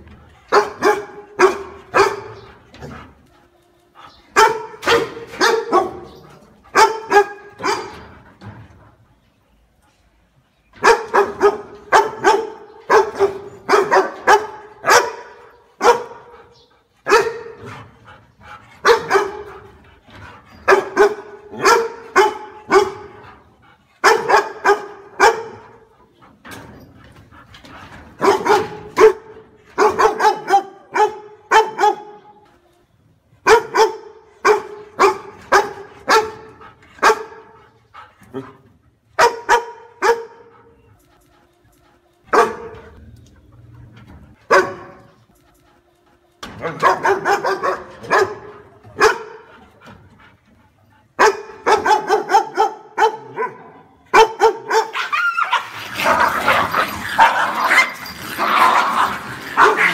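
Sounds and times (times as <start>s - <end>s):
dog barking: 0.5s - 2.4s, 4.4s - 8.0s, 10.8s - 16.3s, 17.1s - 17.6s, 18.8s - 19.5s, 20.7s - 23.2s, 24.0s - 25.8s, 28.2s - 32.3s, 33.4s - 37.6s, 39.2s - 40.5s, 42.3s - 42.8s, 44.5s - 45.2s, 46.6s - 49.5s, 51.2s - 58.0s, 58.6s - 59.9s.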